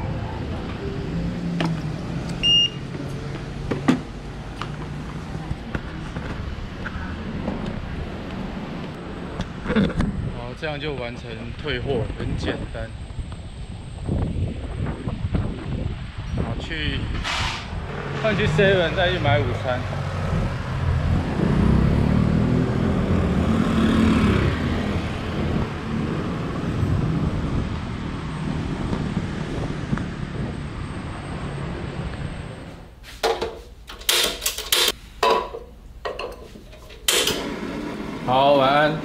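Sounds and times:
city street traffic rumble: 0.0 - 39.0
motor engine passing: 17.7 - 27.6
dishes and utensils clinking: 34.5 - 37.4.

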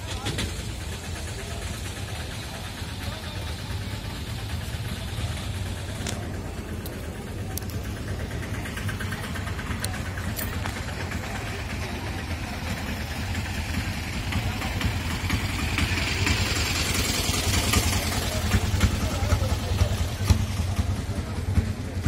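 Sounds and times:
vehicle engine idling: 0.0 - 22.0.

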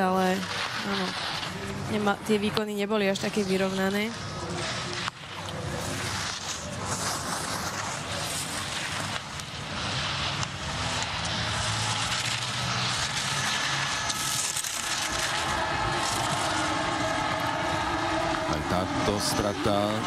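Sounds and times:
skis scraping on snow: 0.0 - 20.0.

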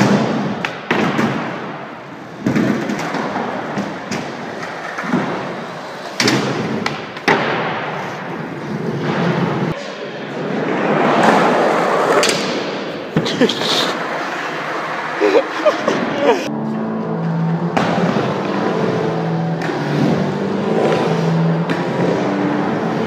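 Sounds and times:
sharp skateboard impacts: 0.0 - 13.6
skateboard wheels rolling: 0.0 - 23.0.

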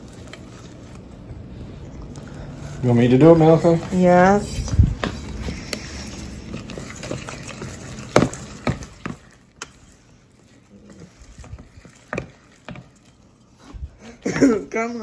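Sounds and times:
whisk stirring thick batter: 0.0 - 15.0
whisk wires clinking on metal bowl: 5.8 - 13.6.

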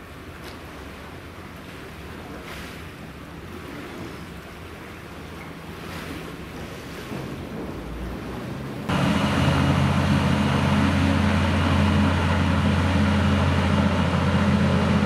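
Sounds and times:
wind and waves: 0.0 - 15.0
broad rushing noise: 5.9 - 15.0
hovercraft engines and propellers drone: 8.1 - 15.0.

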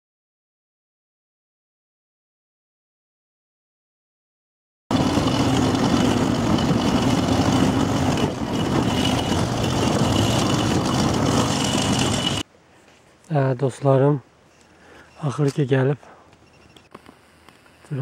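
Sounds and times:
motorcycle engine running: 4.9 - 12.4
wind and road noise: 4.9 - 18.0.

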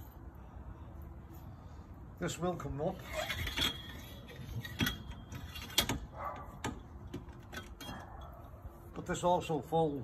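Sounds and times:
hoist metal clicks and clanks: 3.0 - 8.2.

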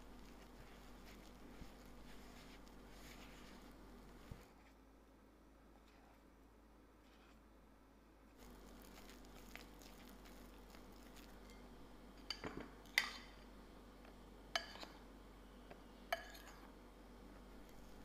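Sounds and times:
scraping of soft dough: 0.0 - 4.8, 8.4 - 11.6.

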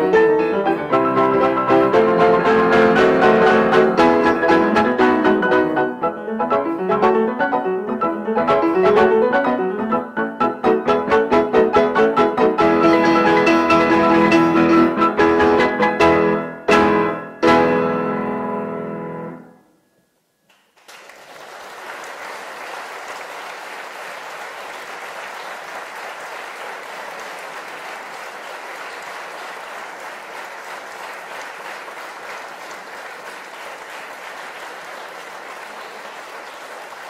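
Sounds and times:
audience applause: 20.5 - 37.0.

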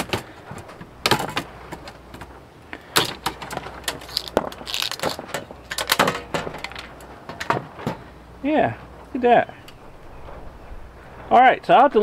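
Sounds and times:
metallic clicks and scrapes: 3.0 - 7.5.

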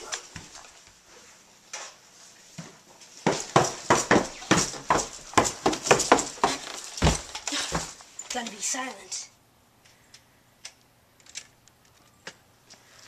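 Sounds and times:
footsteps down wooden stairs: 0.0 - 1.0, 2.6 - 8.4.

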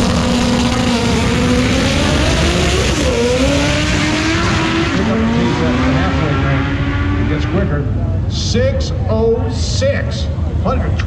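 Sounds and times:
car engine accelerating hard: 0.0 - 8.2.

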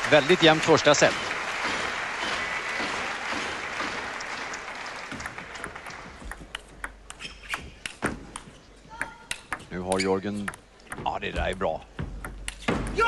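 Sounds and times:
crowd applauding: 0.0 - 6.6
table tennis ball bouncing: 5.1 - 13.0.

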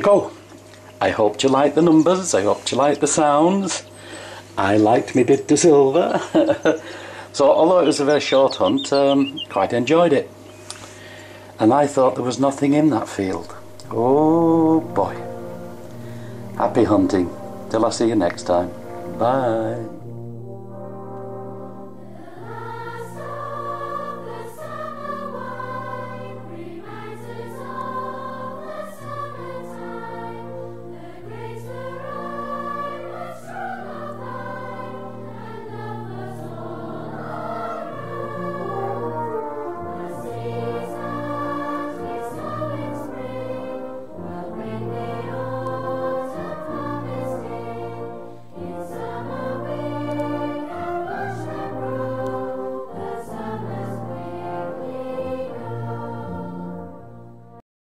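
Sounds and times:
choir singing: 0.0 - 10.6, 11.6 - 57.2
sustained low notes: 12.1 - 56.2.

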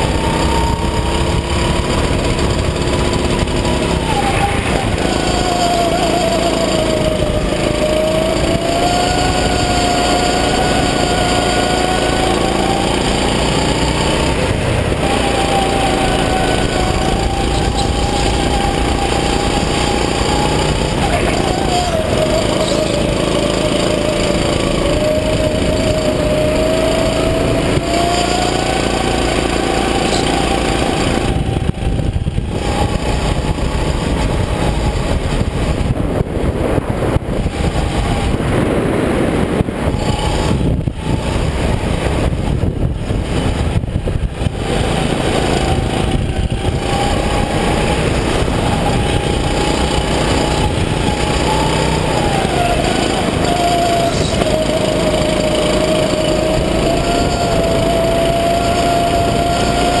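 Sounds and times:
go-kart engine running hard: 0.0 - 60.0.

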